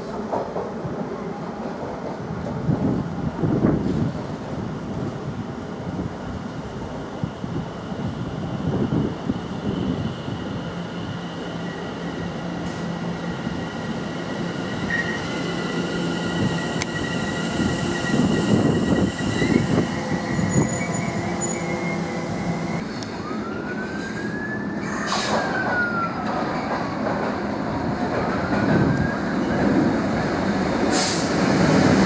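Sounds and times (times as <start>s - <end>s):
high squeal of freight train: 8.7s - 27.0s, 28.2s - 29.8s, 30.9s - 32.0s
electric train traction whine: 13.2s - 22.8s
wheel and track rumble: 18.1s - 22.8s.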